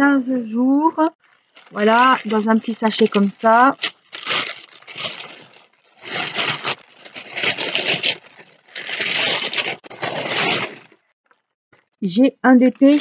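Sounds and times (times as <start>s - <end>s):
plastic pouch crinkling: 1.2s - 11.0s.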